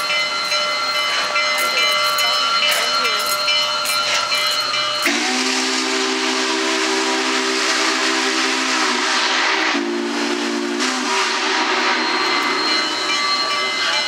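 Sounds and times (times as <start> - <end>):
steam hissing: 0.0 - 14.0
steam whistle blasts: 5.0 - 13.9.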